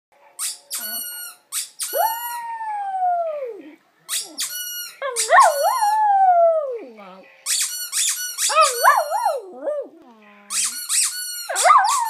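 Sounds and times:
squeaky toy squeaking: 0:00.4 - 0:02.4, 0:04.1 - 0:06.0, 0:07.4 - 0:09.5, 0:10.3 - 0:12.0.

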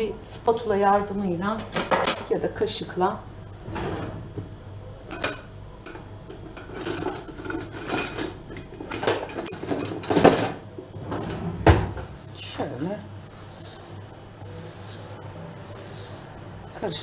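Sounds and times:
utensils and dishes clinking: 0:01.6 - 0:02.3, 0:05.0 - 0:12.1.

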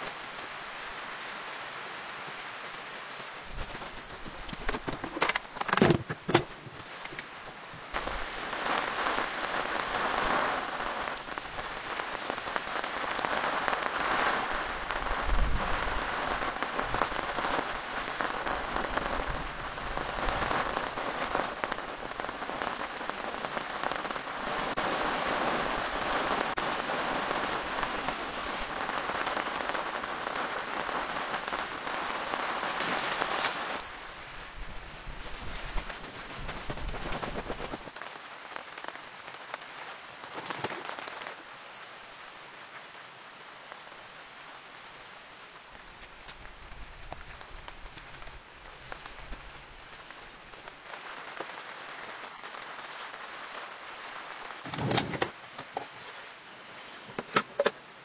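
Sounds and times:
heavy rain falling: 0:00.0 - 0:58.0.

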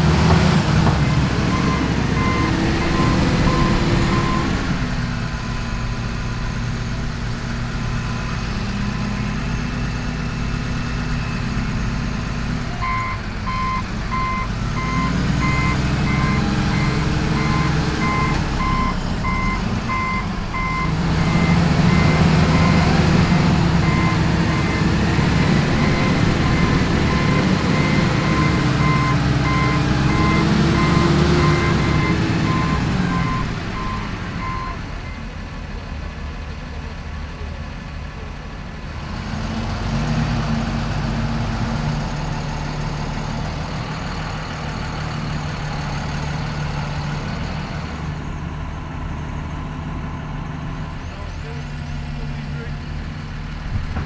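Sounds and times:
diesel engine revving: 0:00.0 - 0:54.0
reversing alarm beeping: 0:01.5 - 0:04.6, 0:12.8 - 0:22.9, 0:23.6 - 0:35.2.

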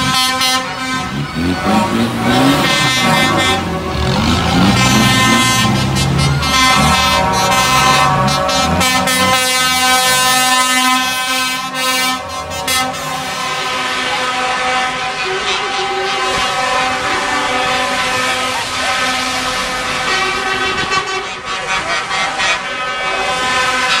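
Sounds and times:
diesel engines rumbling: 0:00.0 - 0:24.0
lorry air horns: 0:00.0 - 0:24.0.

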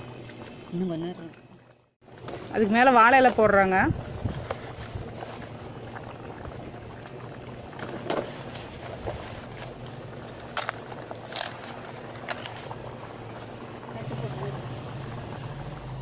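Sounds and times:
rice and water boiling in pot: 0:00.0 - 0:16.0
leaves crackling and rustling: 0:07.9 - 0:14.4.

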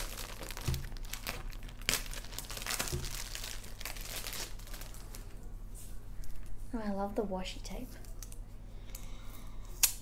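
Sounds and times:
plastic bag crinkling and tearing: 0:00.0 - 0:05.4.

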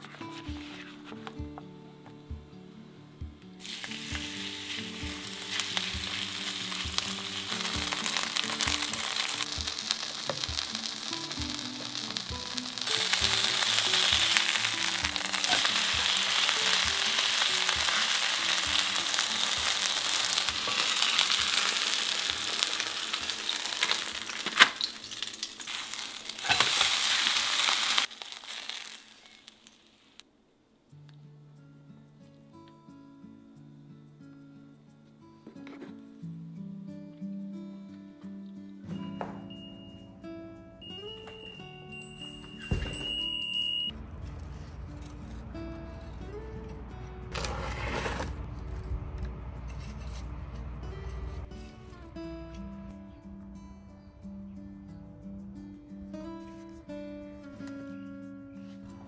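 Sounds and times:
batter sizzling in hot oil: 0:03.6 - 0:30.2.

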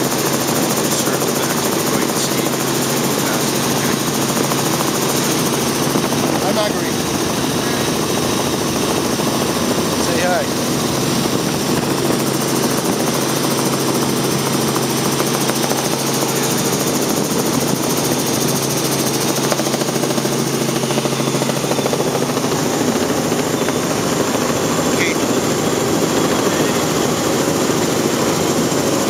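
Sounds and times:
helicopter engine and rotors drone: 0:00.0 - 0:29.0.

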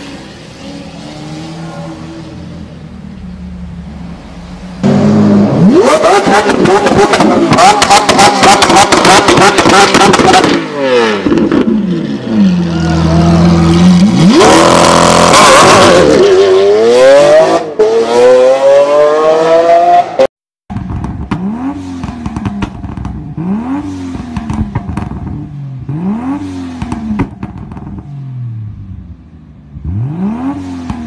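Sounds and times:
car engine revving loudly: 0:04.8 - 0:11.7, 0:13.0 - 0:20.3, 0:21.3 - 0:27.2, 0:29.8 - 0:31.0
sharp exhaust pops: 0:06.2 - 0:10.6, 0:20.7 - 0:23.3, 0:24.1 - 0:25.4, 0:26.7 - 0:28.1
car exhaust throttle blips: 0:20.7 - 0:28.9.

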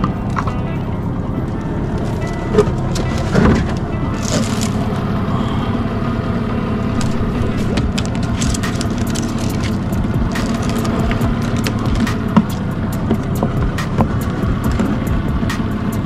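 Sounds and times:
outboard motor running: 0:00.0 - 0:16.0.

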